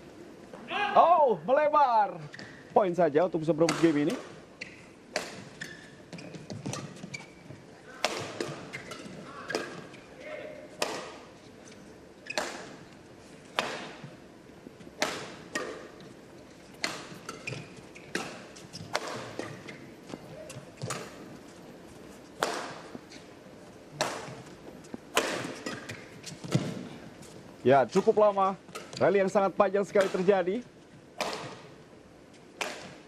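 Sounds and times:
rackets striking shuttlecock: 3.6 - 7.1, 7.9 - 10.0, 10.8 - 11.3, 15.0 - 16.1, 16.8 - 21.4, 22.4 - 23.1, 23.9 - 26.8, 29.9 - 30.4, 31.2 - 31.8, 32.6 - 33.0.

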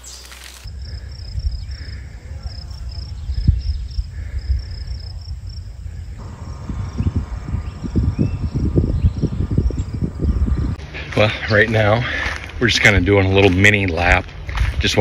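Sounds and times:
insects chirping: 0.0 - 10.8
wind rumble on microphone: 0.8 - 11.0, 12.3 - 15.0.

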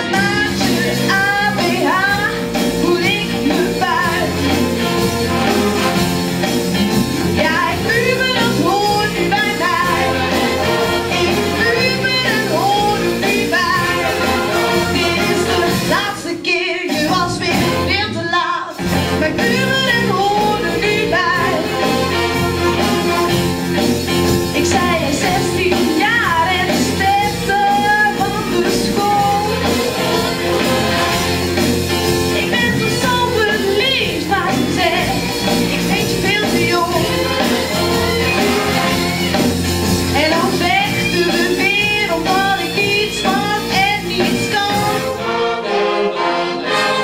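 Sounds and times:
woman singing into microphone: 0.0 - 4.6, 7.4 - 10.3, 11.1 - 21.8, 24.6 - 29.8, 32.4 - 38.3, 40.2 - 45.1
band accompaniment: 0.0 - 47.0.

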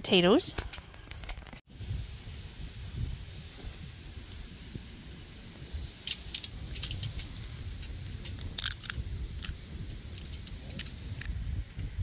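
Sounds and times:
wind on microphone: 1.7 - 12.0
egg cracking: 6.1 - 11.4.

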